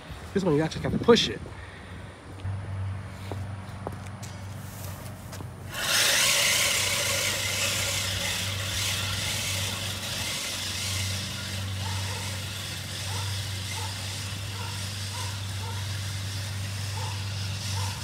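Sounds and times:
reel mower whirring through grass: 0:04.6 - 0:18.0.

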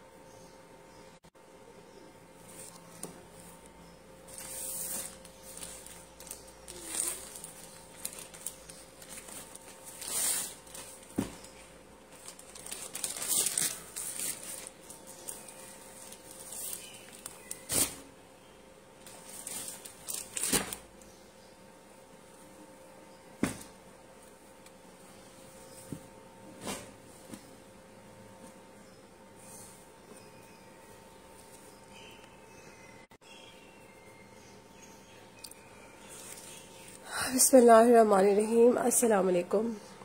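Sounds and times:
cloth and plastic packaging rustling: 0:04.3 - 0:18.1, 0:19.0 - 0:20.9.

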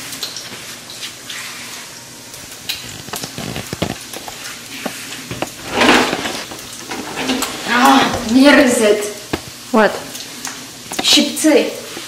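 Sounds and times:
bacon sizzling in a skillet: 0:07.7 - 0:12.0.

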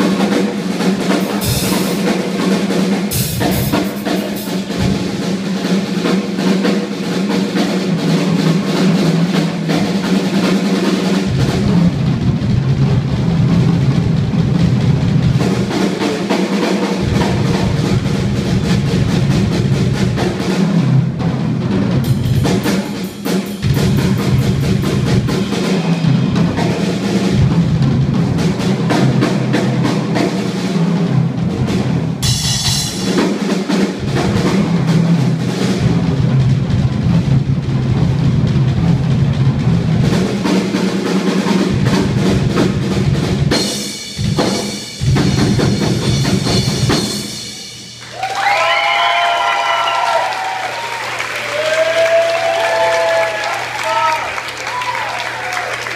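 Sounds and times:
marching tenor drums: 0:00.0 - 0:47.3
snare drum rolls: 0:00.0 - 0:55.9
audience cheering: 0:48.0 - 0:55.9.

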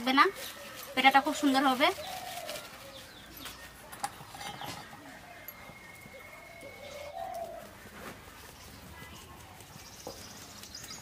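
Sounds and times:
plastic bag rustling: 0:00.0 - 0:11.0
dove cooing: 0:00.4 - 0:03.0, 0:04.3 - 0:08.1.

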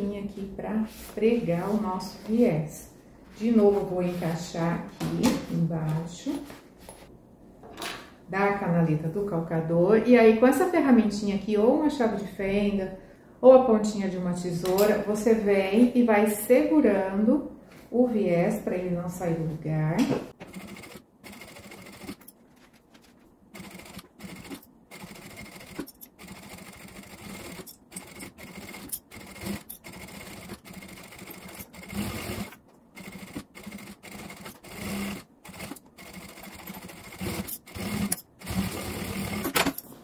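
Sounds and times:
sewing machine stitching: 0:20.5 - 0:22.3, 0:23.6 - 0:39.8.

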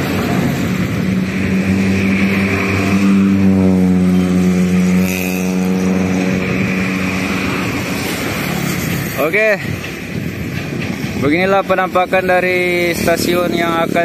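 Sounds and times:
vehicle engine passing: 0:00.0 - 0:10.5.

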